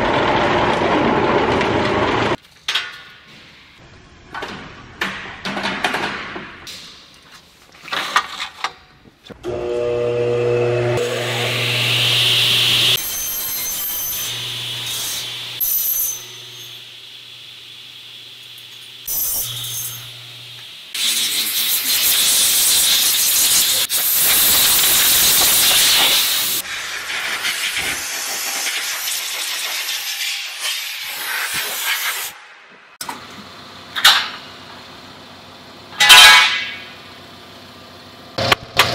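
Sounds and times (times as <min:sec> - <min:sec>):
cut-off saw motor hum: 0:09.4 - 0:17.6
saw cutting: 0:09.5 - 0:17.0
air blow gun hissing: 0:20.9 - 0:32.4.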